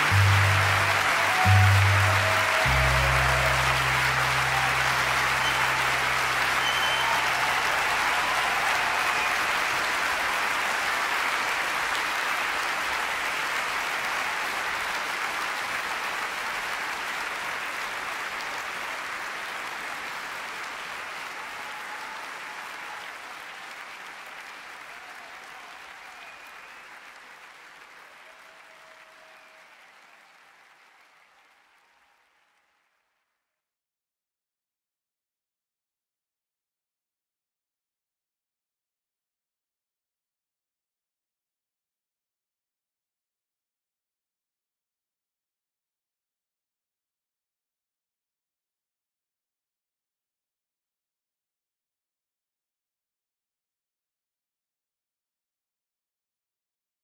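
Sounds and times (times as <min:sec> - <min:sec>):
audience applauding: 0:00.0 - 0:33.1.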